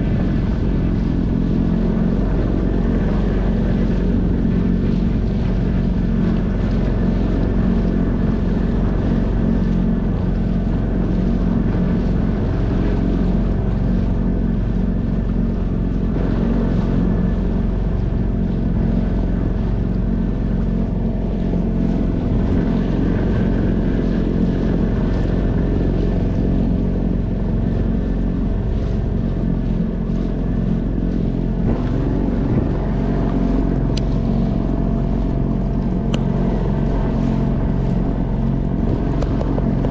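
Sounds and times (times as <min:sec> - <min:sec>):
outboard motor running: 0:00.0 - 0:39.9
water splashing on rubber hull: 0:00.0 - 0:39.9.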